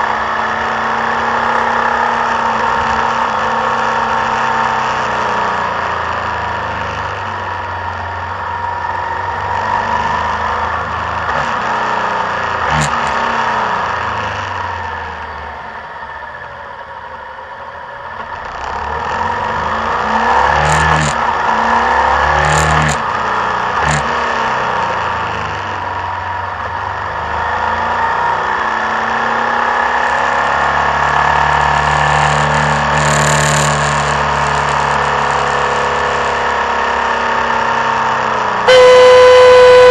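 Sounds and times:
motorcycle engine running: 0:38.6 - 0:39.9.

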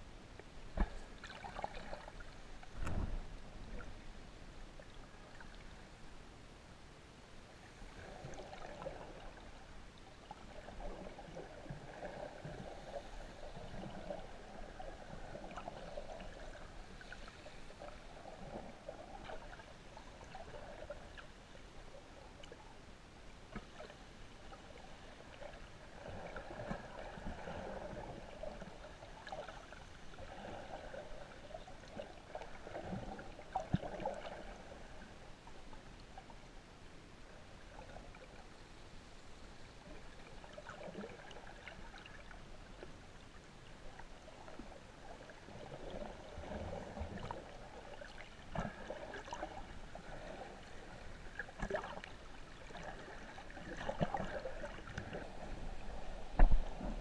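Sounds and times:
water sloshing and gurgling: 0:00.2 - 0:06.4, 0:07.5 - 0:57.0.

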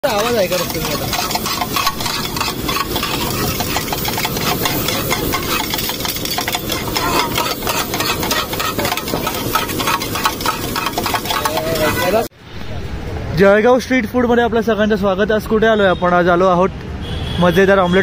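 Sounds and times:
food sizzling: 0:00.0 - 0:12.3
spatulas scraping on griddle: 0:00.0 - 0:12.3.

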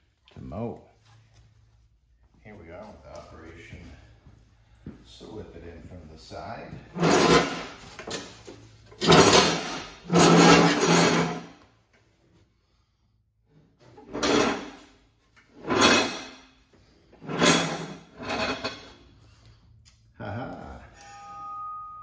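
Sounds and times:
metal deck scraping on concrete: 0:06.9 - 0:08.3, 0:09.0 - 0:11.5, 0:13.9 - 0:14.8, 0:15.6 - 0:16.4, 0:17.2 - 0:19.0.

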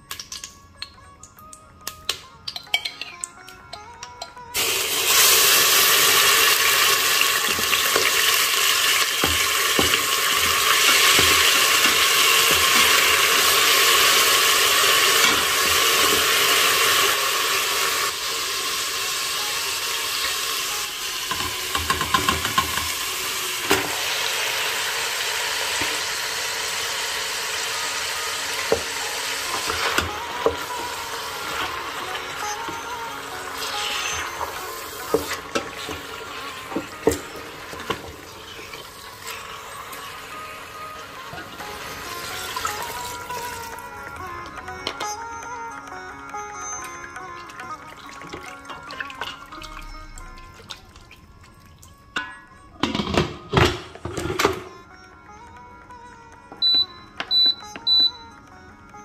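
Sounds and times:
hot fat sizzling in a pot: 0:04.6 - 0:43.9
spoon knocking on pot: 0:21.3 - 0:23.0.

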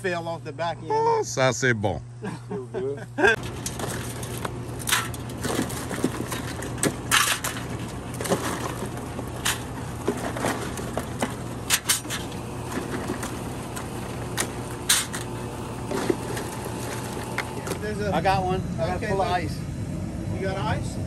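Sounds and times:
steady low hum: 0:00.0 - 0:21.0
crabs clattering on metal: 0:03.4 - 0:17.9.

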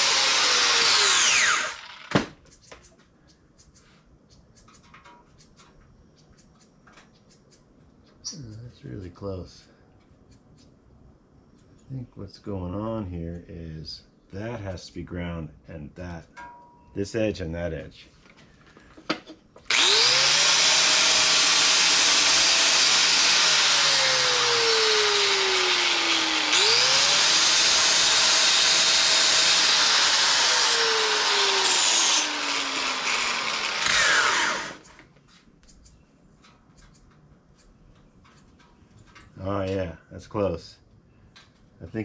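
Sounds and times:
electric grinder grinding metal: 0:00.0 - 0:02.2, 0:19.7 - 0:35.0.

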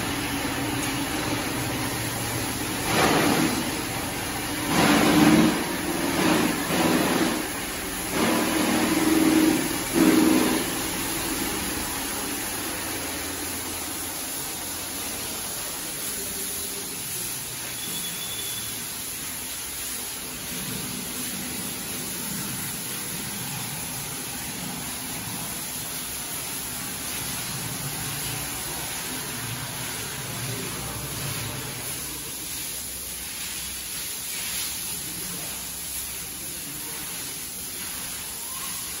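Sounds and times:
steady hissing cattle shed noise: 0:00.0 - 0:39.0.

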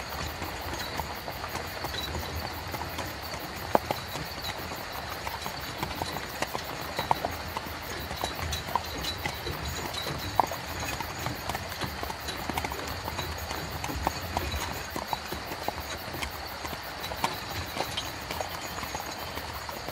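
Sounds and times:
carriage wheels rumbling: 0:00.0 - 0:19.9
horse hooves clopping: 0:00.0 - 0:19.9.

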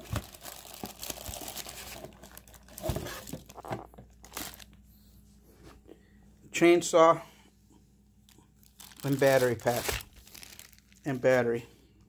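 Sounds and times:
plastic packaging crinkling: 0:00.0 - 0:04.8, 0:08.6 - 0:11.6.

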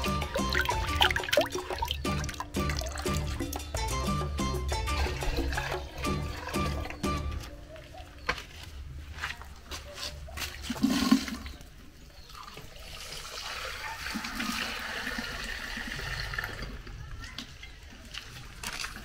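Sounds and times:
water running into glass bowl: 0:00.0 - 0:03.8.

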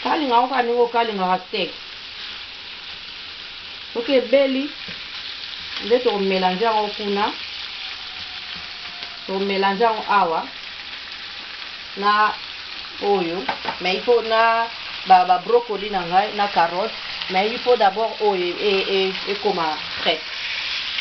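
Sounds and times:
beef sizzling in a pan: 0:00.0 - 0:21.0.

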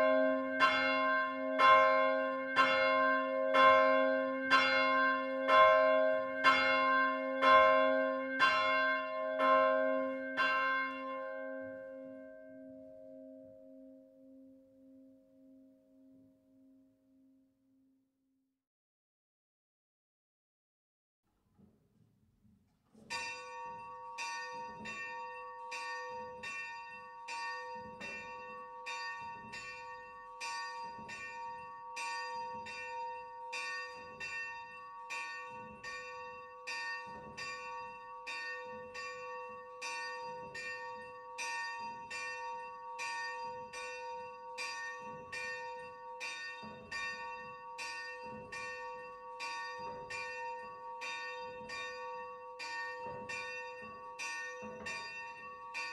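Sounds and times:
small church bell ringing: 0:00.0 - 0:16.8, 0:23.1 - 0:55.9.

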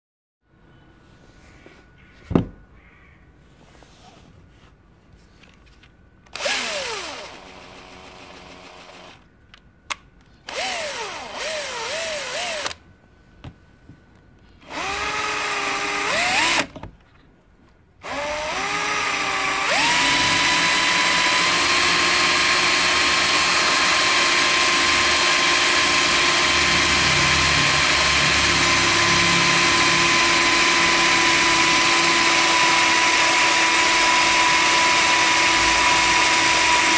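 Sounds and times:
drill boring into phone: 0:06.4 - 0:09.2, 0:10.5 - 0:12.8, 0:14.7 - 0:16.7, 0:18.0 - 0:36.9.

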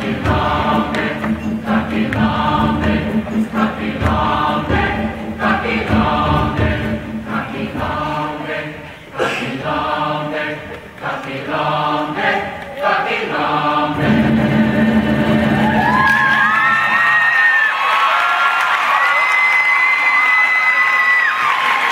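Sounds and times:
hand drum: 0:00.0 - 0:07.9
choir chanting phrases: 0:00.0 - 0:16.0.

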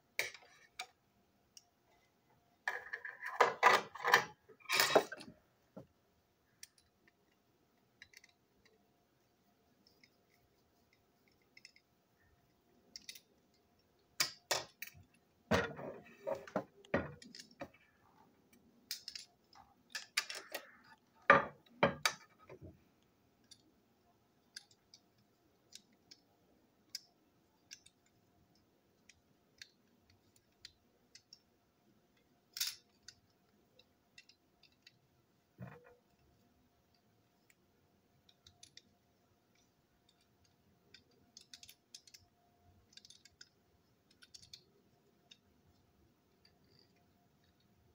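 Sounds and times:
plastic toy parts clicking: 0:06.6 - 0:08.8, 0:10.9 - 0:11.9, 0:12.9 - 0:15.2, 0:16.8 - 0:17.8, 0:18.5 - 0:22.3, 0:23.4 - 0:23.7, 0:24.4 - 0:31.5, 0:32.1 - 0:35.0, 0:38.2 - 0:47.6.

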